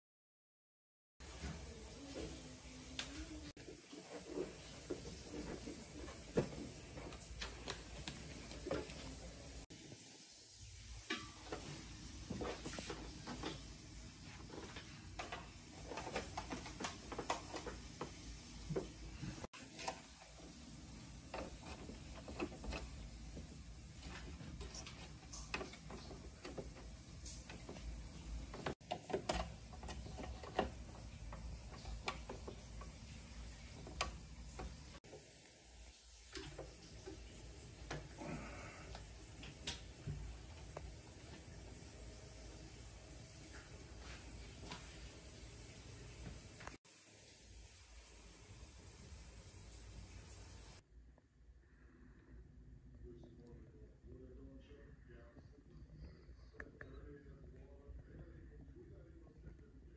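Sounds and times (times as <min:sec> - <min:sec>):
cables clicking and tapping: 0:14.5 - 0:35.0.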